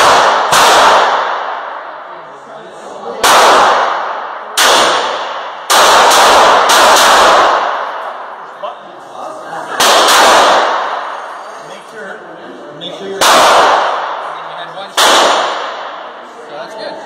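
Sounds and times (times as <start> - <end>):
handgun shots echoing: 3.2 - 8.1, 9.8 - 11.0, 13.2 - 14.2, 15.0 - 16.0.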